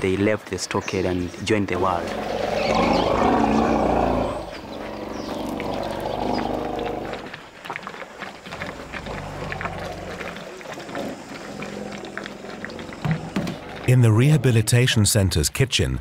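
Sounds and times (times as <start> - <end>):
elephants rumbling: 1.6 - 14.9.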